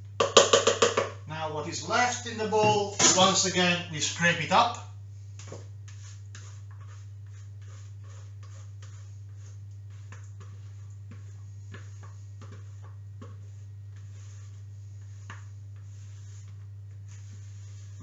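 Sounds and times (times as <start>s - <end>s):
utensil scraping plastic bowl: 5.9s - 17.9s.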